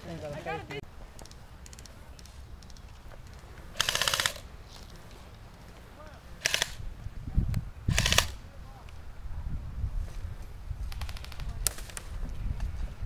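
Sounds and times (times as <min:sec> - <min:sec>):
airsoft rifle full-auto bursts: 0:03.8 - 0:04.4, 0:06.4 - 0:06.8, 0:07.9 - 0:08.4.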